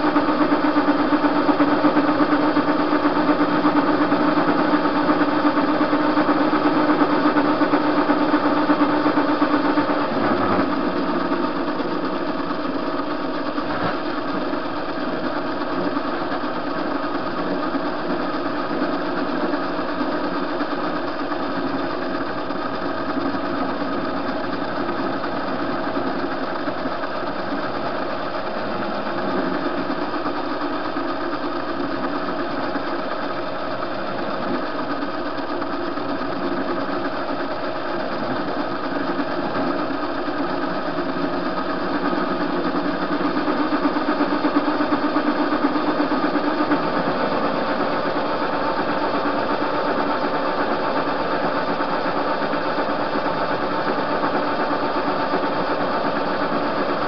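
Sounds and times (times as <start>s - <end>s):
metal lathe cutting shaft: 0.0s - 57.0s.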